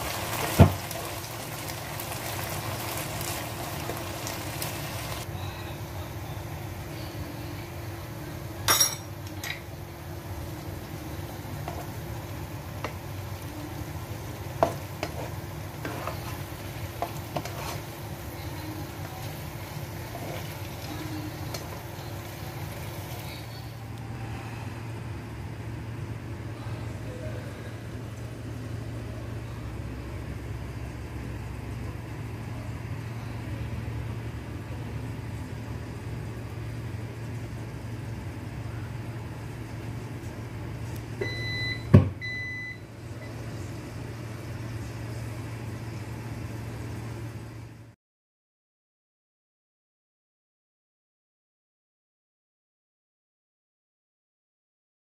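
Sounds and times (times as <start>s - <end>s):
frying sizzle: 0.0s - 23.8s
steady low hum: 3.6s - 48.0s
spoon knocking and scraping pan: 14.6s - 16.4s, 17.0s - 17.9s.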